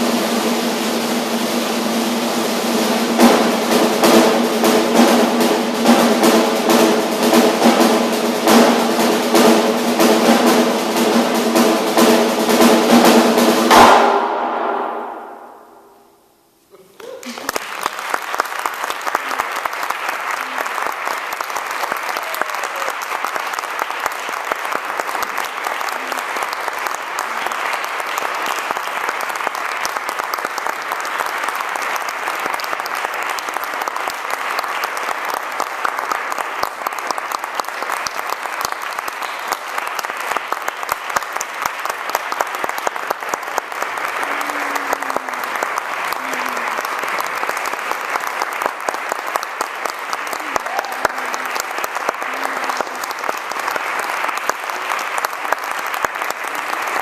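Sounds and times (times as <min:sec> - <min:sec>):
audience clapping: 0:00.0 - 0:15.9, 0:16.7 - 0:57.0
faint voices: 0:44.1 - 0:47.0.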